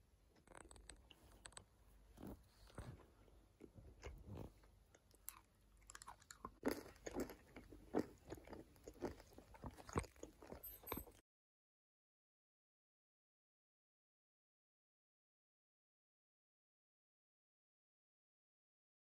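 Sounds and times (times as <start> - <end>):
person chewing and crunching: 2.2 - 11.2.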